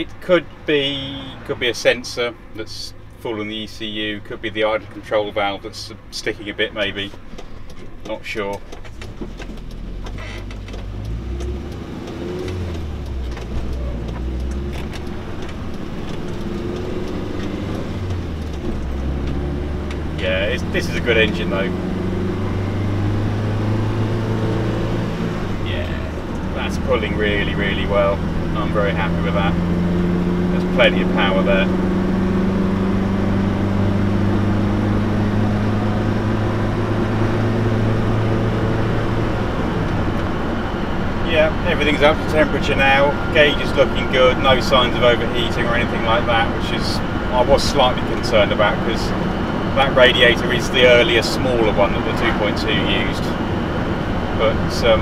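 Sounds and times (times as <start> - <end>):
road and wind noise: 0.0 - 55.0
van engine pulling away: 0.0 - 55.0
light clicks and rattles: 7.0 - 20.0.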